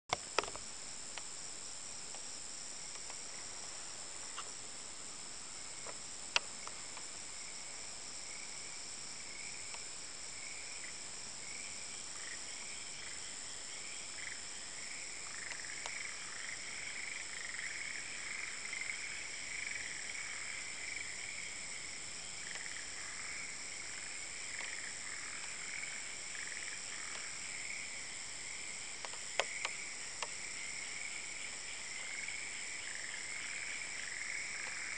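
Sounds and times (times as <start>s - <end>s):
high-pitched insect drone: 6.6s - 34.9s
frogs calling: 12.1s - 28.2s, 29.0s - 34.9s.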